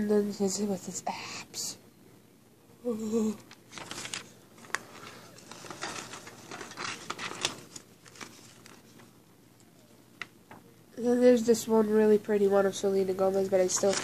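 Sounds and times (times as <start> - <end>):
paper or plastic rustling: 3.5 - 9.2, 13.5 - 14.0.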